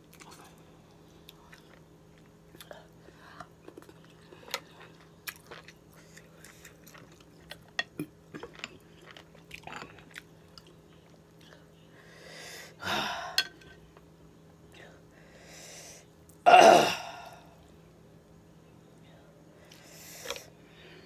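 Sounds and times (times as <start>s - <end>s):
person chewing: 1.3s - 11.6s.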